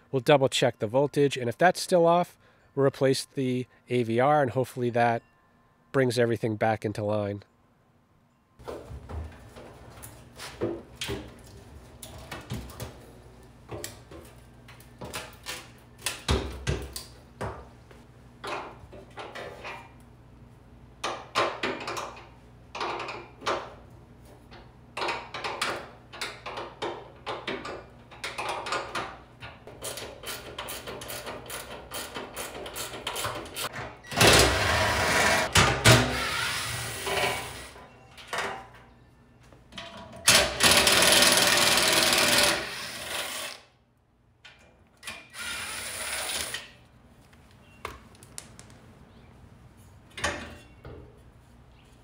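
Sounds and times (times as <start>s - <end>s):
cordless drill running: 40.6s - 43.6s.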